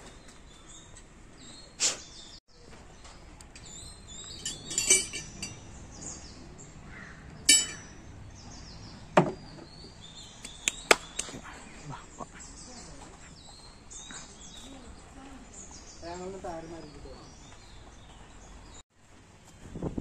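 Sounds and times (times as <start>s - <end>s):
metal parts clinking: 4.3s - 5.7s, 7.5s - 8.0s.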